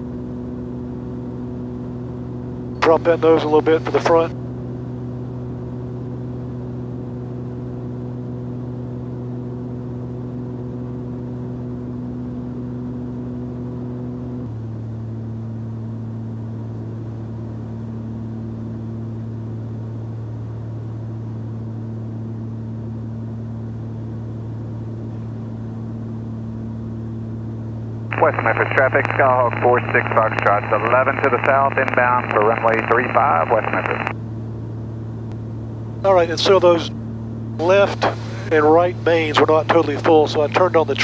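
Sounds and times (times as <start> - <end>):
propeller plane engines droning: 0.0 - 41.0.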